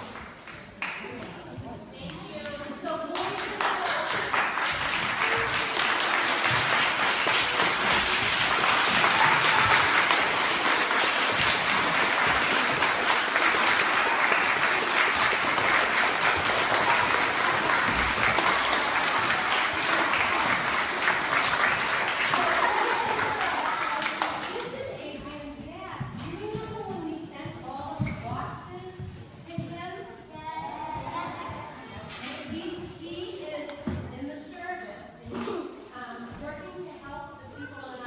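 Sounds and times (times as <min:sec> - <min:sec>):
crowd applauding: 0:03.2 - 0:24.8.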